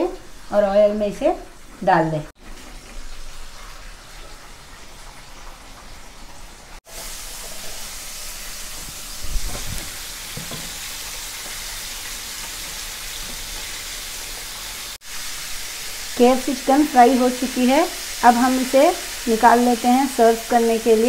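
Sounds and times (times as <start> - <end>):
chicken deep-frying in oil: 0.0 - 21.0
skimmer knocking: 8.8 - 10.8.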